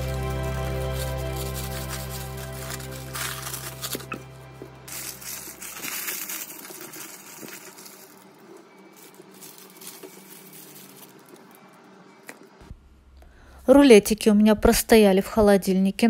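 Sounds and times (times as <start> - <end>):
parchment paper crinkling: 0.0 - 4.3, 4.9 - 11.7
soft background music: 0.0 - 12.8.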